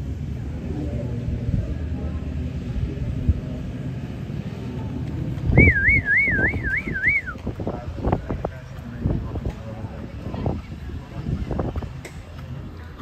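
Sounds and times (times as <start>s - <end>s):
steady low rumble: 0.0s - 13.0s
person whistling warbling: 5.6s - 7.4s.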